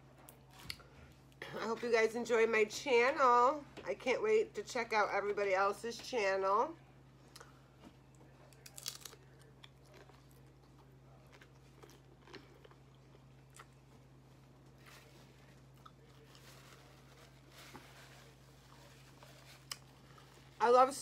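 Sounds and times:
steady low hum: 0:00.0 - 0:21.0
chewing crunchy chips: 0:08.1 - 0:17.0, 0:18.3 - 0:20.6.

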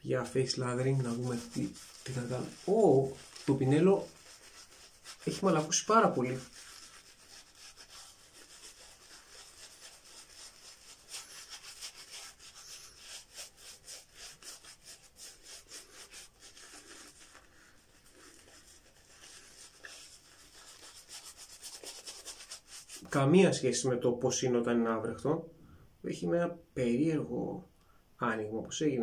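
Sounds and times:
shaving brush lathering face: 0:00.2 - 0:23.2.

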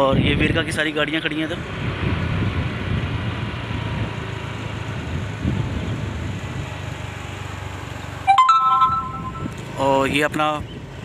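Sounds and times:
air rushing and road noise: 0:00.0 - 0:11.0
low engine hum: 0:01.6 - 0:08.4.

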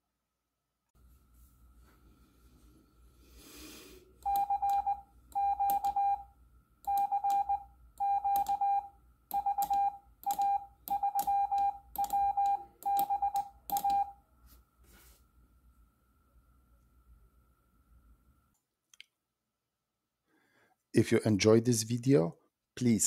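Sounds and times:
morse code beeps: 0:04.2 - 0:06.3, 0:06.9 - 0:14.2.

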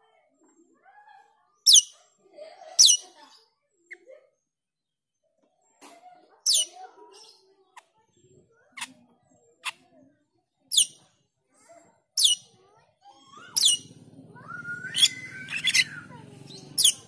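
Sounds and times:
bird chattering warble: 0:01.7 - 0:01.9, 0:12.2 - 0:12.4, 0:13.4 - 0:17.0
bird whistling sharp falling notes: 0:14.4 - 0:16.1.

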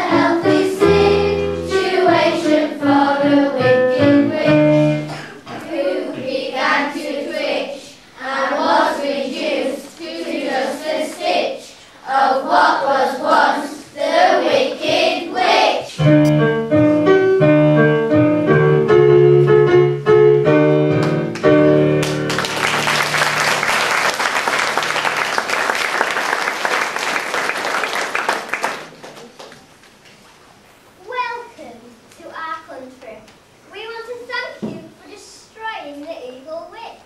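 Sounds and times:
piano chords: 0:00.0 - 0:06.2, 0:16.0 - 0:25.6
children singing: 0:00.0 - 0:15.9
audience applause: 0:22.0 - 0:29.7.

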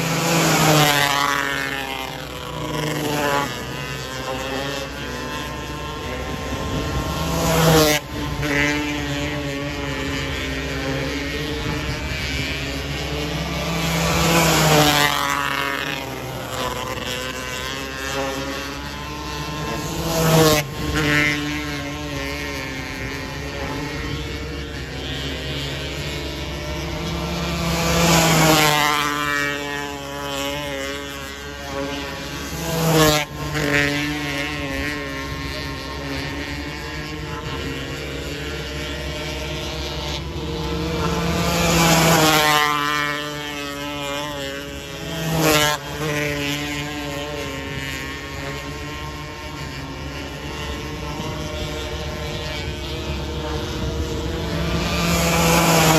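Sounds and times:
race car engines running hard: 0:00.0 - 0:55.9
race cars passing close: 0:00.0 - 0:55.9.

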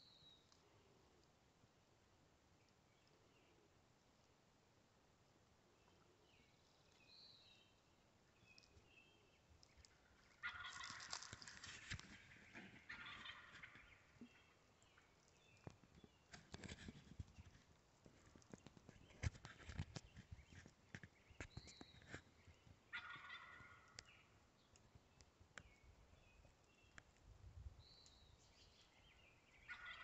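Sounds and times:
turkey gobbling: 0:10.3 - 0:14.4, 0:22.9 - 0:24.0, 0:29.6 - 0:30.0.

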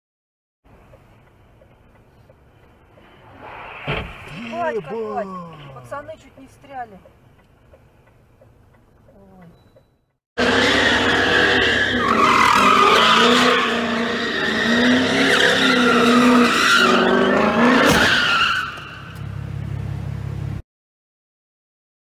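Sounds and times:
car engine revving: 0:02.8 - 0:06.8, 0:10.4 - 0:20.3
sudden sharp sound: 0:03.2 - 0:05.8.

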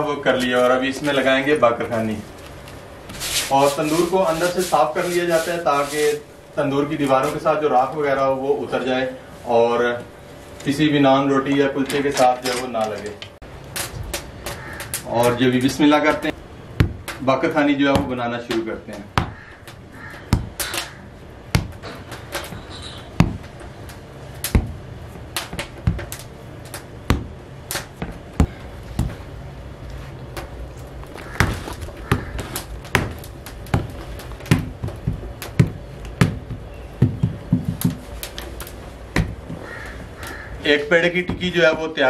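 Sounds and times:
hands slapping dough: 0:13.7 - 0:29.4, 0:30.1 - 0:40.4.

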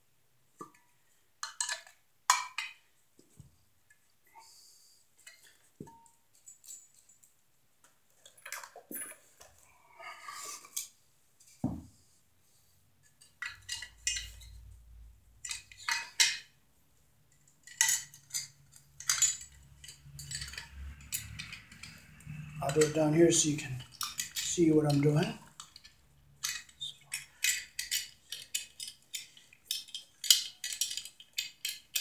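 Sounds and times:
metal box and connector clinking: 0:17.4 - 0:22.0.

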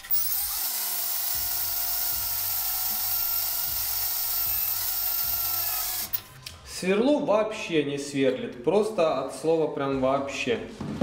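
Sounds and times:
power drill whining on steel: 0:00.0 - 0:06.2.

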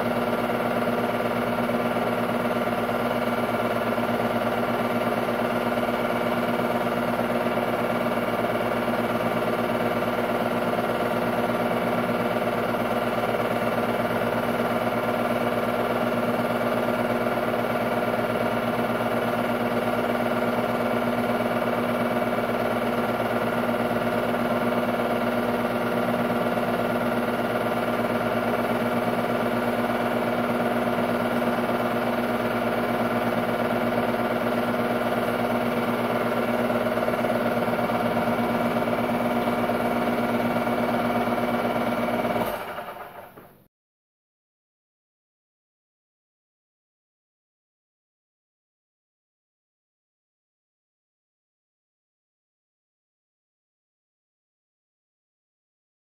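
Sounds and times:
film projector humming and whirring: 0:00.0 - 0:43.5.

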